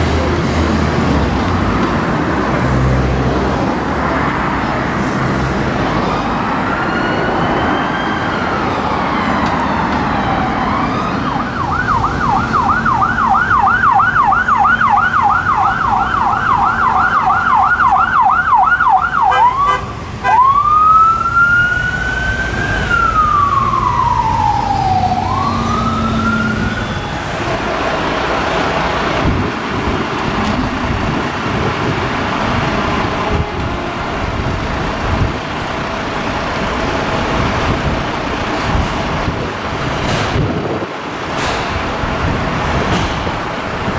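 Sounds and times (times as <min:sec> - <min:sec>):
traffic noise: 0:00.0 - 0:43.9
emergency vehicle siren: 0:05.9 - 0:38.3.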